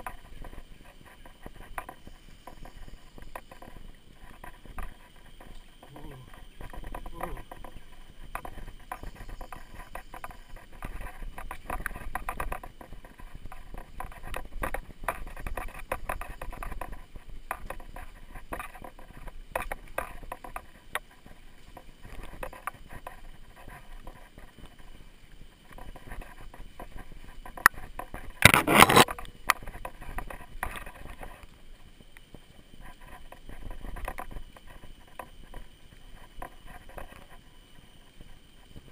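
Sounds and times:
tyre crunching over dirt and leaves: 26.0 - 32.4.

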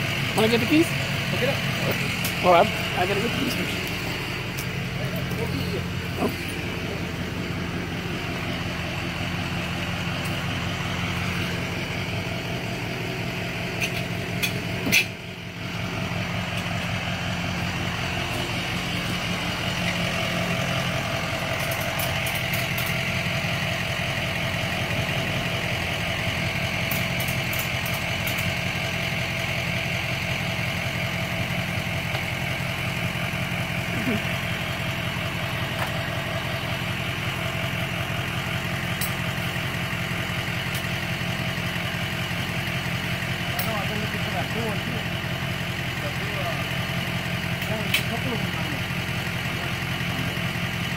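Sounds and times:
truck engine idling: 0.0 - 50.9.

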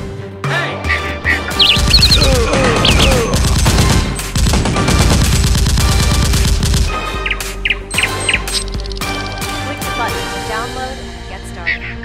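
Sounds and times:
background music: 0.0 - 12.0
automatic gunfire: 1.6 - 7.0.

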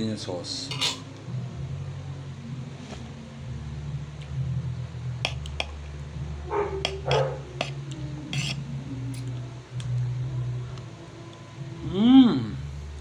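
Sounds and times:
steady low hum: 0.0 - 13.0
cutlery clinking on a plate: 0.7 - 1.0.

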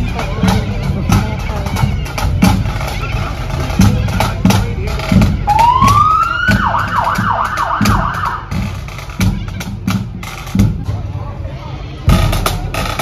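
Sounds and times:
pipe band drums beating: 0.0 - 13.0
siren wailing and yelping: 5.5 - 8.4.

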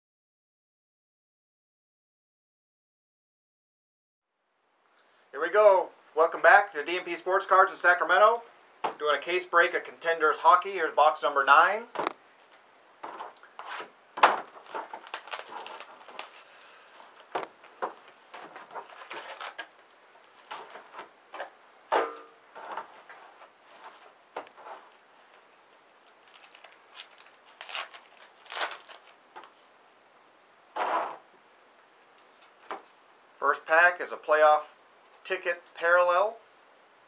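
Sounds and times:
plastic and foil packs crinkling: 13.1 - 21.5, 22.5 - 29.7.

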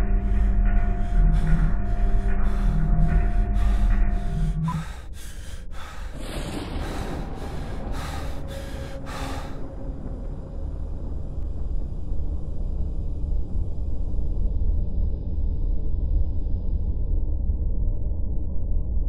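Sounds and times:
heavy rapid breathing: 0.0 - 10.1
low rumbling drone: 0.0 - 19.0.

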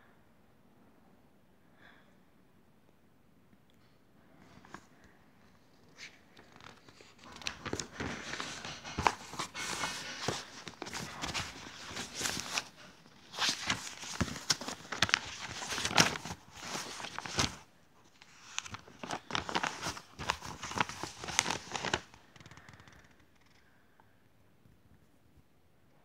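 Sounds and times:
cloth rustling against microphone: 5.9 - 22.6.

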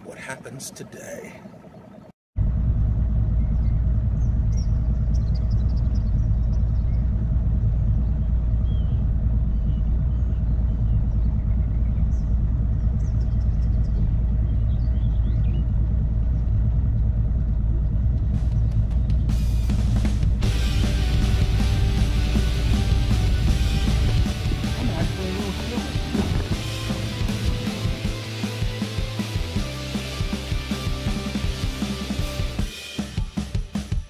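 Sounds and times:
outboard motor idling: 0.0 - 32.6
small birds chirping: 3.4 - 7.2, 7.9 - 17.1.

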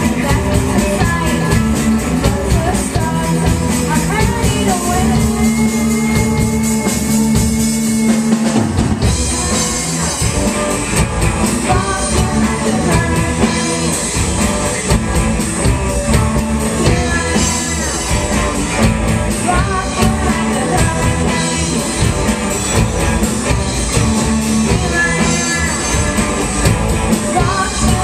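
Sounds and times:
person singing: 0.0 - 8.6, 11.4 - 14.5, 16.1 - 22.2, 24.2 - 28.0
bass guitar: 0.0 - 28.0
distorted electric guitars: 0.0 - 28.0
drum kit: 0.0 - 28.0.

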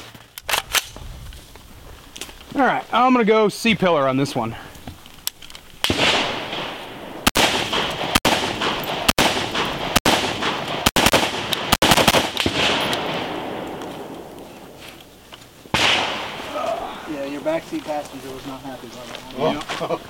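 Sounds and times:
rifle shots with echo: 5.8 - 14.7, 15.7 - 16.5.

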